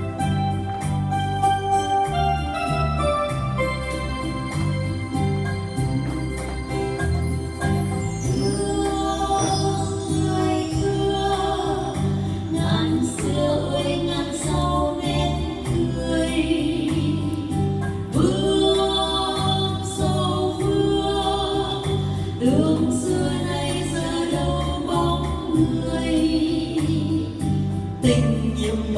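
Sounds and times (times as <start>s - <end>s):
bass rhythm: 0.0s - 28.9s
keyboard accompaniment: 0.0s - 28.9s
women singing a duet: 8.3s - 28.9s.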